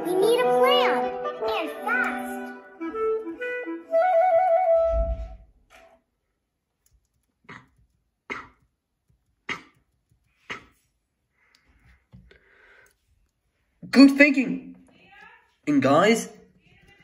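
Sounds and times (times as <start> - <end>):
held woodwind note: 1.0 - 5.5.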